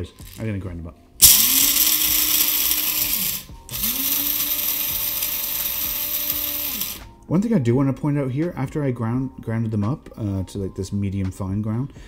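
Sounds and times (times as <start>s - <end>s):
spice grinder grinding coffee beans: 0.0s - 0.5s, 1.2s - 7.1s.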